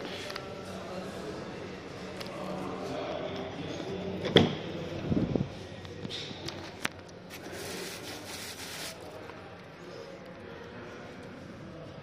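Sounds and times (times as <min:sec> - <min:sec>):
plastic covers rustling: 0:07.3 - 0:09.2.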